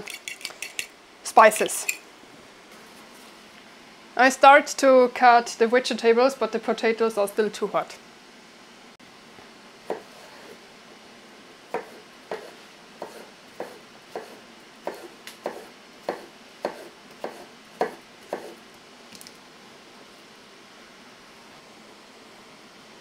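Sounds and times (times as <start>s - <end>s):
knife cutting vegetables on board: 11.7s - 18.6s.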